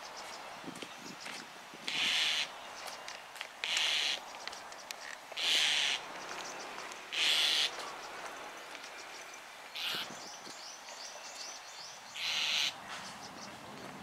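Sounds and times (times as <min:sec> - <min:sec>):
starling harsh grating calls: 0:01.9 - 0:02.9, 0:03.6 - 0:04.3, 0:05.4 - 0:08.2, 0:08.9 - 0:10.2, 0:12.1 - 0:12.8.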